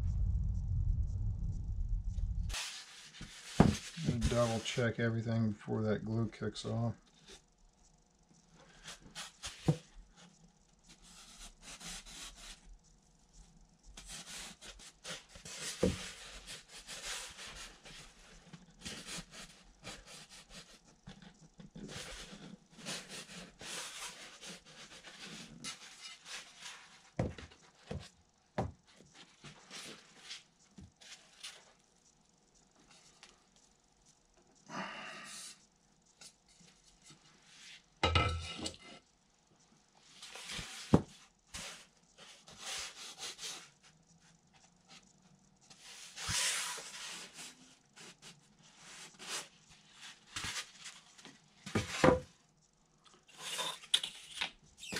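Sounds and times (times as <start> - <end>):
hands rubbing foam and tape: 2.5 - 4.8.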